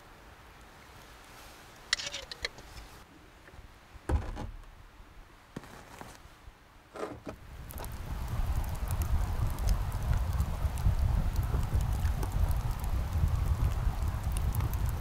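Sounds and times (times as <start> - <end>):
knocks and thumps: 4.1 - 4.7
low rumbling with crackles: 7.0 - 15.0.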